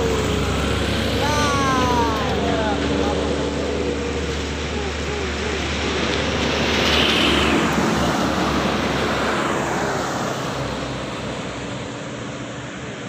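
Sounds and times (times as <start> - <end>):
heavy truck passing: 0.0 - 13.0.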